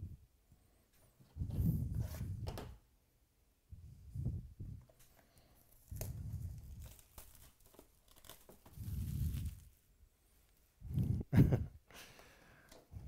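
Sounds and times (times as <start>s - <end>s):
plastic shrink wrap crinkling: 5.5s - 9.8s.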